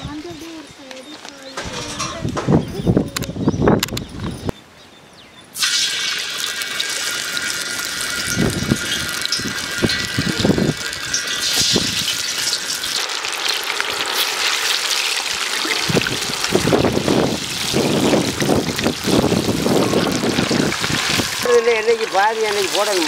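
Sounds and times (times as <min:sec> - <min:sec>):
liquid pouring and splashing: 0:05.6 - 0:23.0.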